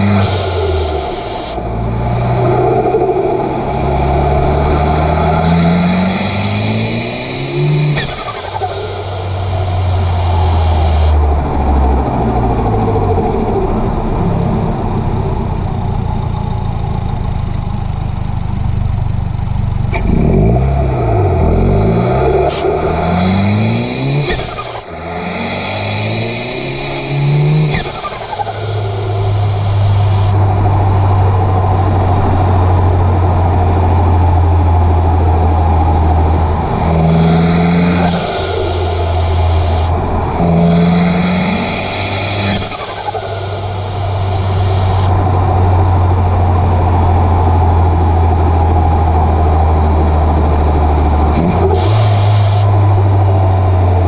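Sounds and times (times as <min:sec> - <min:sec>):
car engine revving: 0:00.0 - 0:54.0
turbo hiss and whistle: 0:06.0 - 0:11.1, 0:22.4 - 0:30.3, 0:40.5 - 0:45.1.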